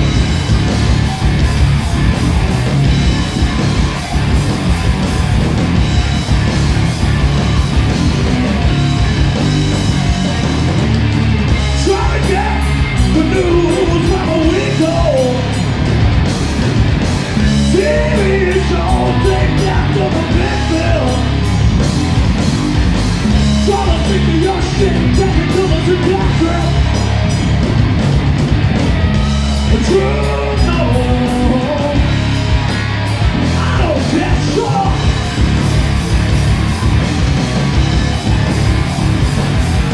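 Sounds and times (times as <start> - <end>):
bass: 0.0 - 39.9
drum kit: 0.0 - 39.9
electric guitars: 0.0 - 39.9
singer's vocals: 11.7 - 15.6, 17.6 - 21.4, 23.6 - 26.8, 29.7 - 32.2, 33.5 - 35.2.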